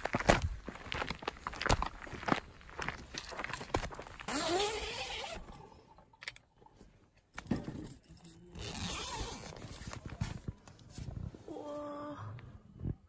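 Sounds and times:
footsteps on dirt trail: 0:00.0 - 0:04.8
tent zip rasping: 0:04.3 - 0:05.6, 0:08.5 - 0:10.0.

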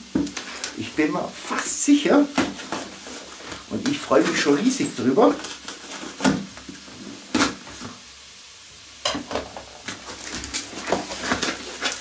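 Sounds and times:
cardboard scraping and rustling: 0:02.2 - 0:08.0, 0:09.9 - 0:12.0.

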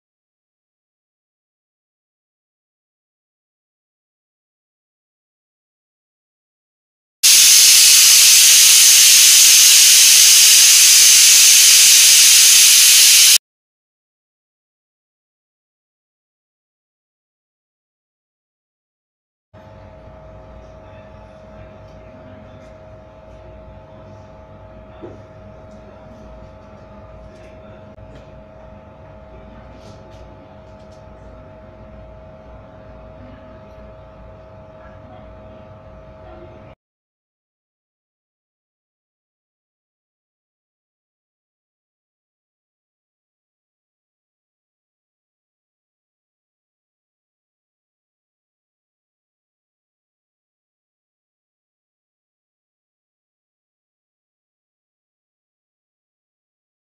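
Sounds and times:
pressure cooker whistling steam: 0:07.2 - 0:13.4
mechanical hum with low rumble: 0:19.6 - 0:36.8.

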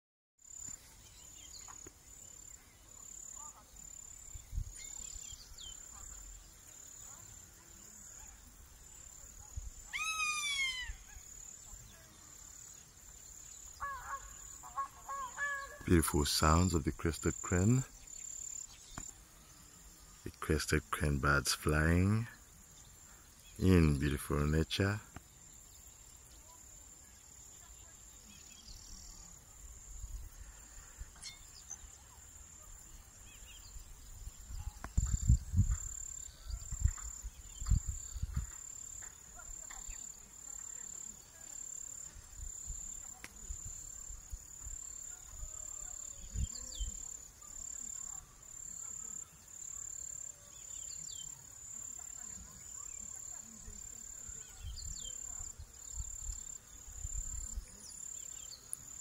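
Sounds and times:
high-pitched insect trill: 0:00.4 - 0:15.9, 0:25.3 - 0:59.0
faint bird chirps: 0:00.5 - 0:21.0, 0:21.9 - 0:59.0
eagle screaming: 0:09.9 - 0:11.2, 0:13.8 - 0:15.9.

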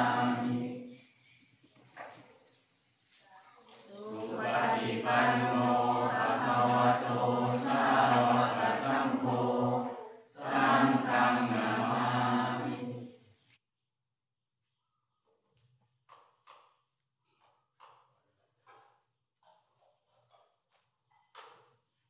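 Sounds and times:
group chanting in unison: 0:00.0 - 0:00.9, 0:04.0 - 0:13.2.

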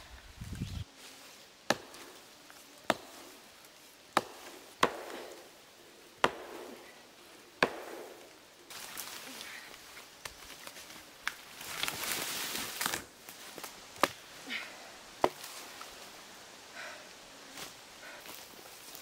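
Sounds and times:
hatchet chopping wood: 0:01.7 - 0:02.0, 0:02.8 - 0:03.2, 0:04.1 - 0:05.4, 0:06.2 - 0:06.8, 0:07.6 - 0:08.3, 0:15.2 - 0:15.4.

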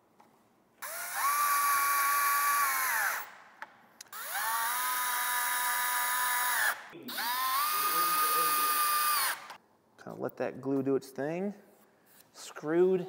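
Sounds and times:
cordless drill driving screws: 0:00.8 - 0:03.3, 0:04.0 - 0:09.6.

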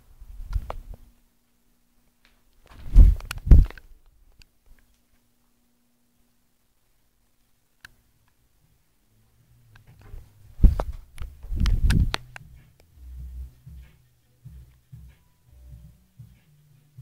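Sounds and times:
rubbing and thumps on microphone: 0:02.7 - 0:03.8, 0:10.0 - 0:12.8.

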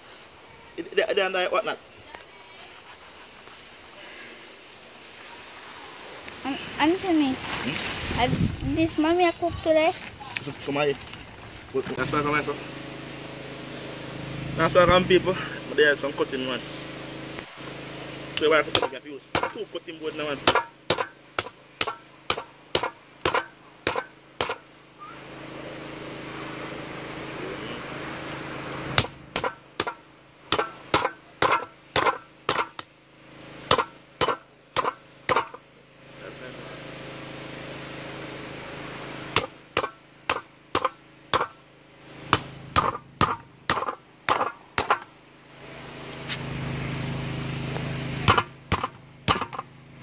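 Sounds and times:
knife chopping on wooden board: 0:18.7 - 0:19.6, 0:20.5 - 0:24.6, 0:29.0 - 0:32.8, 0:33.7 - 0:35.6, 0:39.4 - 0:41.6, 0:42.3 - 0:45.0.

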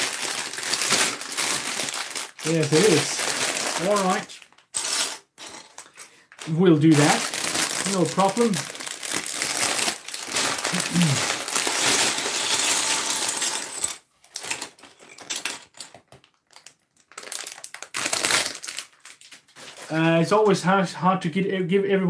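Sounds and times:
plastic bag crinkling: 0:00.0 - 0:05.0, 0:05.8 - 0:20.1
plastic bricks clattering on table: 0:10.4 - 0:16.6.

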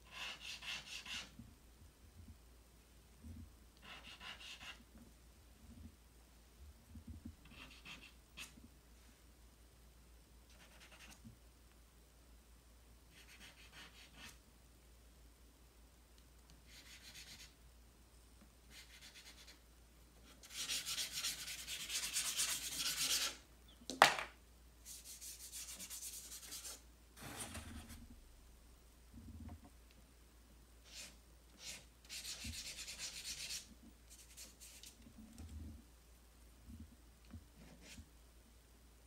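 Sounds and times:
charcoal rubbing on paper: 0:00.0 - 0:01.3, 0:03.8 - 0:04.8, 0:20.4 - 0:23.4, 0:30.8 - 0:35.0.

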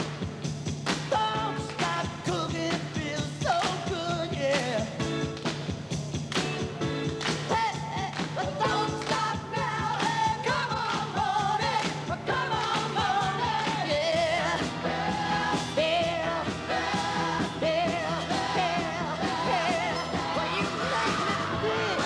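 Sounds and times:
song with singer and instruments: 0:00.0 - 0:22.0.

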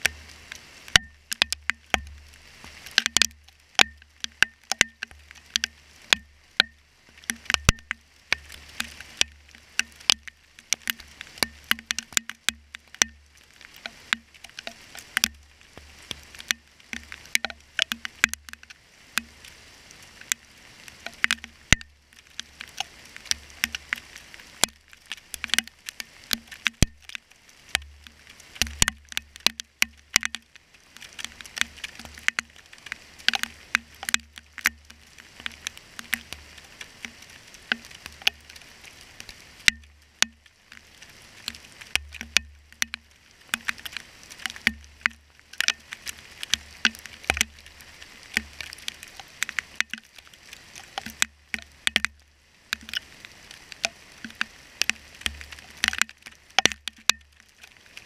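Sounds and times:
hailstones pattering: 0:00.0 - 0:58.0.

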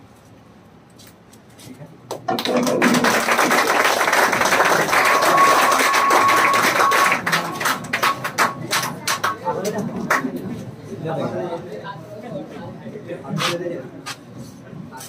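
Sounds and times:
children applauding: 0:02.3 - 0:10.2.

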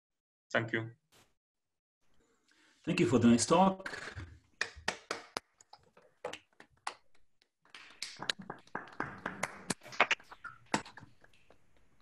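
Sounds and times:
sharp taps and clicks: 0:07.7 - 0:11.0.

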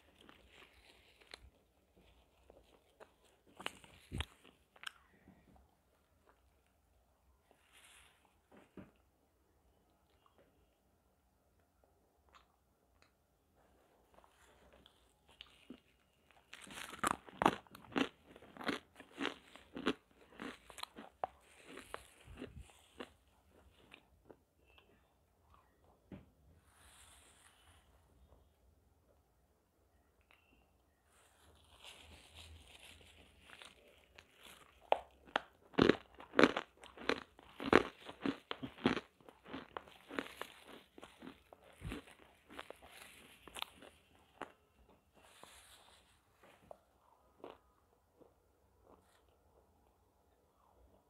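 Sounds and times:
person crunching and chewing: 0:00.0 - 0:05.2, 0:14.1 - 0:25.0, 0:31.5 - 0:49.4.

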